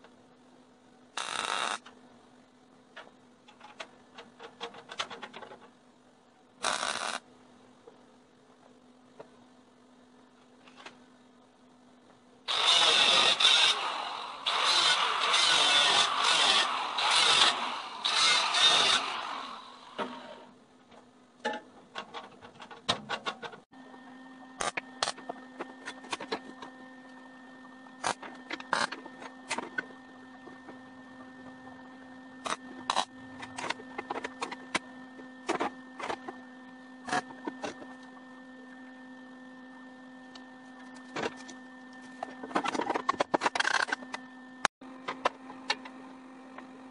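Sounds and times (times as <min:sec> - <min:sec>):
angle grinder grinding steel: 0:12.5 - 0:20.4.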